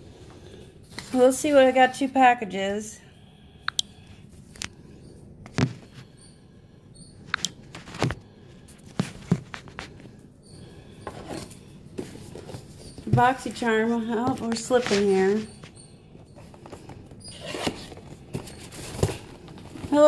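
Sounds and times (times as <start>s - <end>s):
cardboard rustling: 16.4s - 20.0s.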